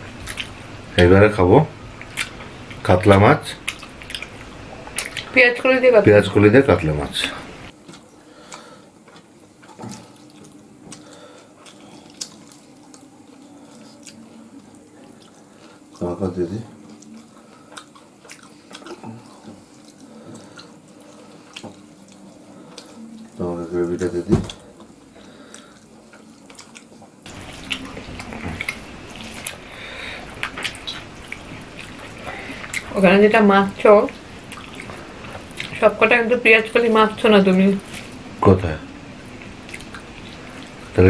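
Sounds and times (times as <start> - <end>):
chewing: 0.2 - 0.6, 2.0 - 2.8, 3.6 - 5.4, 7.7 - 33.0, 33.7 - 36.0, 37.7 - 38.2, 39.2 - 41.0
lip smacks and clicks: 2.0 - 2.4
fingers squelching food on plates: 7.8 - 16.1.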